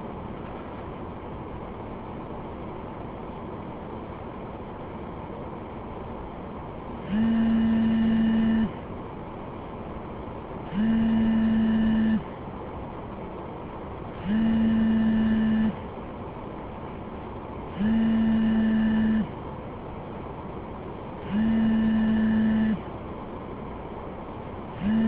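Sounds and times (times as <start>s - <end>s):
low background noise: 0.0s - 25.0s
telephone ringing tone: 14.4s - 15.7s.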